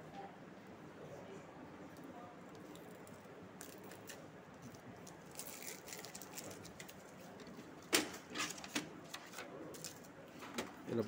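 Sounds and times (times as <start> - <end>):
tape peeling off plastic: 2.7 - 7.0.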